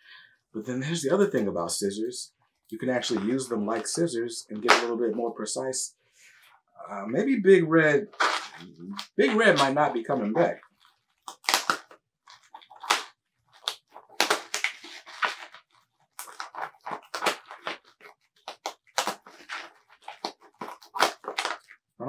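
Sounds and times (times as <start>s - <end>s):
cardboard ripping and crunching: 8.2s - 21.7s
scissors cutting packaging: 11.3s - 21.7s.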